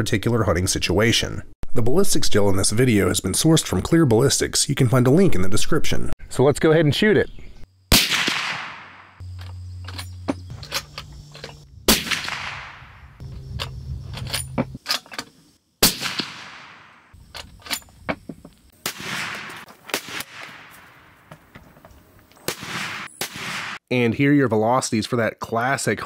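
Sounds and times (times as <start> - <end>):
dull rifle reports: 0.0 - 9.0
suppressed rifle shots: 7.9 - 9.2, 11.9 - 13.2, 15.8 - 17.2, 18.8 - 21.1, 22.5 - 23.8.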